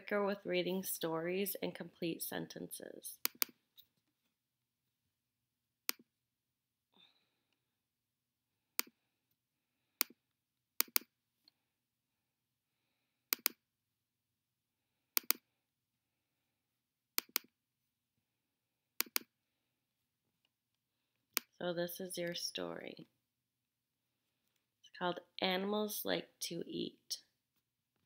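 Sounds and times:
mouse button clicks: 13.3s - 13.6s.

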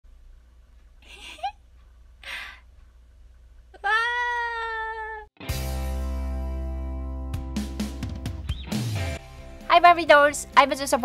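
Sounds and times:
short breathy sounds: 2.2s - 2.7s
high-pitched cry: 3.8s - 5.3s
music: 5.4s - 11.0s.

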